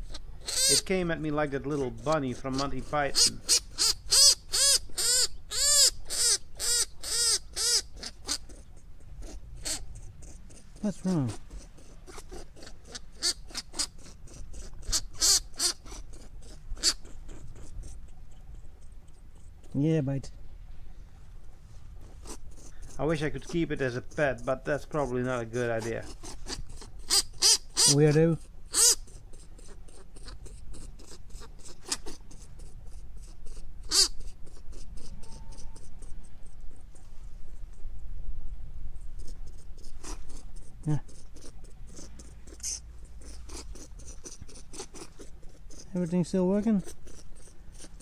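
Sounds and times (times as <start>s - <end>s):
long grass rustling: 20.5s - 24.5s.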